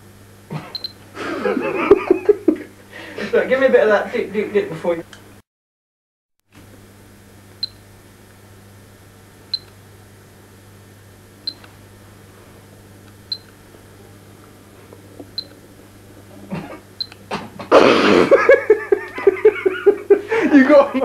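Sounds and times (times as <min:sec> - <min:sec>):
low electrical hum: 0:00.0 - 0:05.4, 0:06.5 - 0:21.0
short high-pitched beeps: 0:00.8 - 0:01.0, 0:07.6 - 0:07.8, 0:13.3 - 0:13.5.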